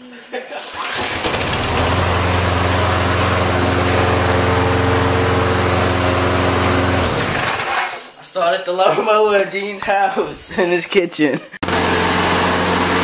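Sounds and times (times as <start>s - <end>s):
lawn mower engine running: 0.7s - 8.0s, 11.6s - 13.0s.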